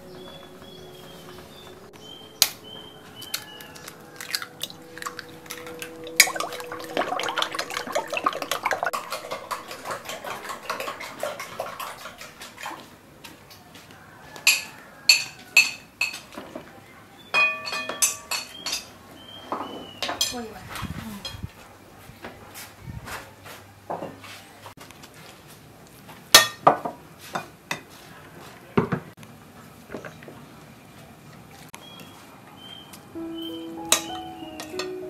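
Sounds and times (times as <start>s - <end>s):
eggs beaten in glass bowl: 2.8s - 12.6s
spoon clinking against bowl: 17.3s - 18.9s.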